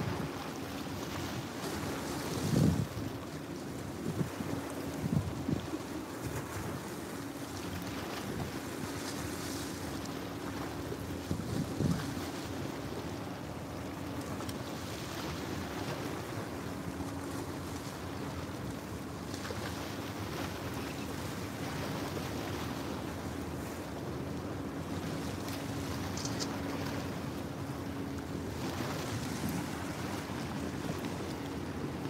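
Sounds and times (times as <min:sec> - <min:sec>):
motorboat engine drone: 0:00.0 - 0:32.0
wind buffeting microphone: 0:01.8 - 0:03.2, 0:03.9 - 0:06.8, 0:11.2 - 0:12.3.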